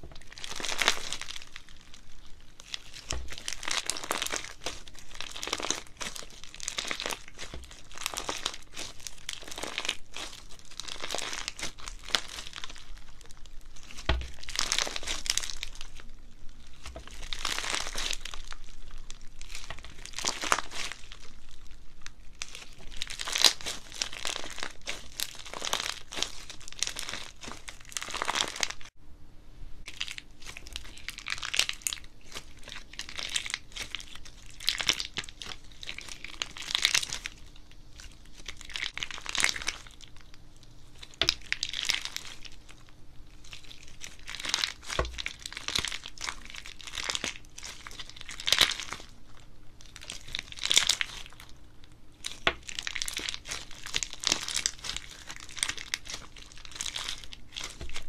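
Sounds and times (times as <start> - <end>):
slime popping: 0.0 - 28.9, 41.0 - 49.2, 49.8 - 51.6, 52.2 - 58.0
slime squishing and crackling: 0.0 - 29.0, 29.8 - 58.0.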